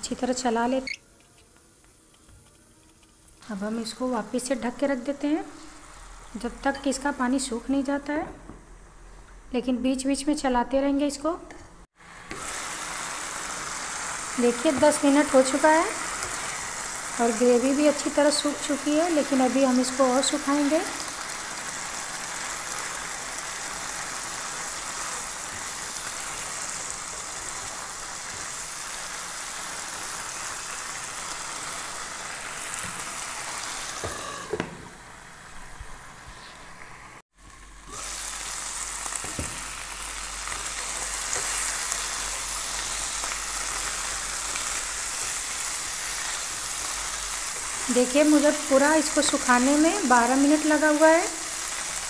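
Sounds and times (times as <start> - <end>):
chicken sizzling in a pan: 12.0 - 52.0.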